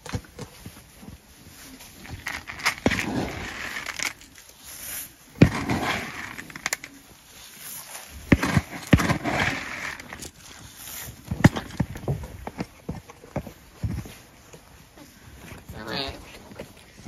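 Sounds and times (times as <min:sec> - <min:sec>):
hay and straw rustling: 0:00.6 - 0:11.3.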